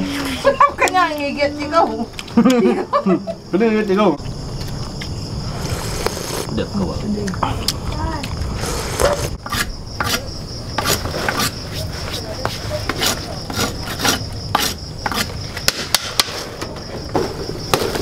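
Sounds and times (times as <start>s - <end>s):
insects chirring: 0.0s - 18.0s
machete scraping on concrete: 5.5s - 6.5s, 8.5s - 16.6s.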